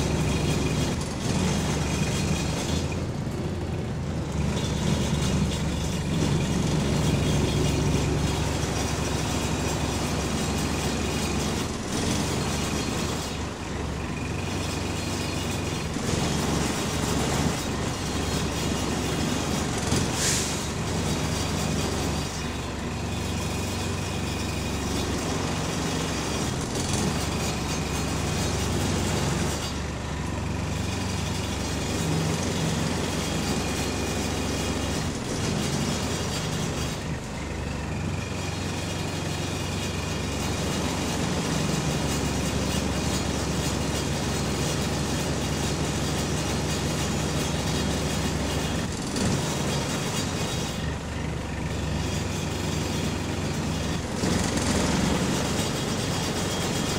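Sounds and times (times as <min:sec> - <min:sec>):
bus engine droning: 0:00.0 - 0:56.9.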